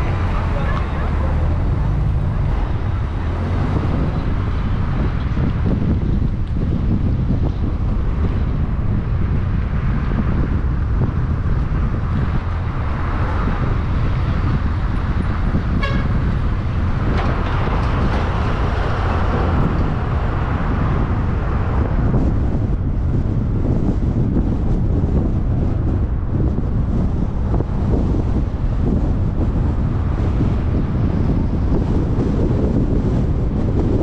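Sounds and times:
road rumble: 0.0 - 34.0
wind on microphone: 0.0 - 34.0
car horn toot: 15.7 - 16.3.

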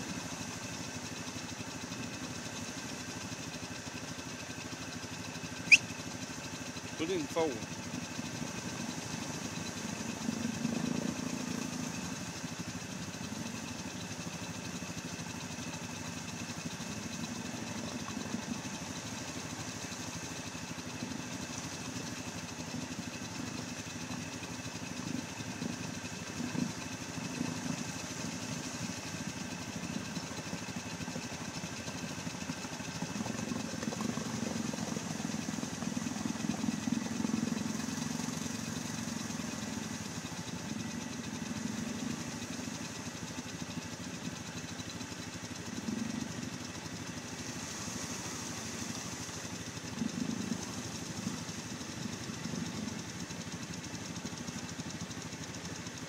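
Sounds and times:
atv engine revving: 32.5 - 43.0, 45.6 - 46.3, 49.9 - 52.9.

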